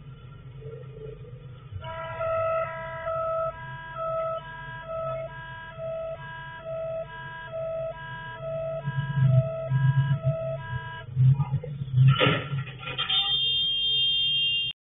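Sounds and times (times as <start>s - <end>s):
low steady hum: 0.0s - 12.7s
electronic two-tone warning siren: 1.8s - 11.6s, 13.0s - 14.8s.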